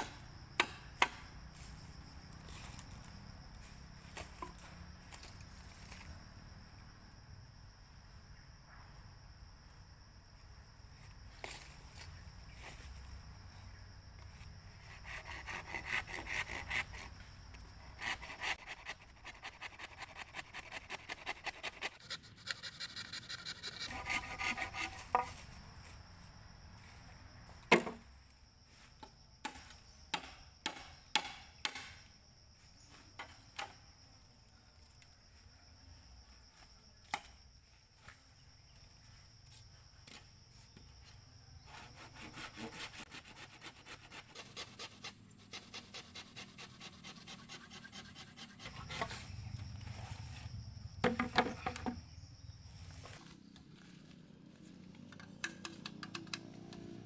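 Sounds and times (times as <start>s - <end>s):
hand saw cutting bamboo: 14.8s - 17.1s, 17.9s - 25.3s, 41.7s - 49.2s.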